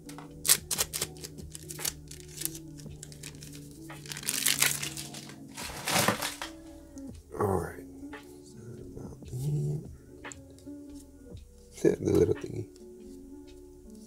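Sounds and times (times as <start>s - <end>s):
soft background music: 0.0s - 14.0s
foil pack crinkling: 0.4s - 6.7s.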